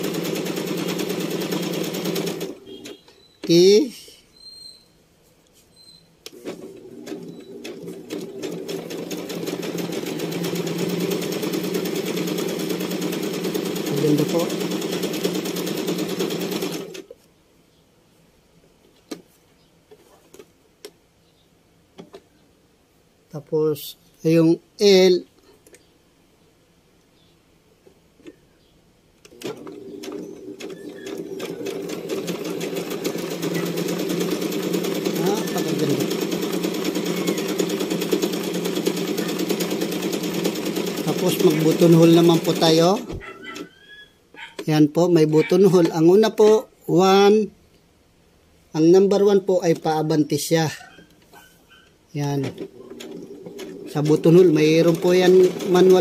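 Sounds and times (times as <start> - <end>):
sewing machine stitching: 0.0 - 3.7, 6.3 - 17.1, 29.3 - 43.8, 52.3 - 56.0.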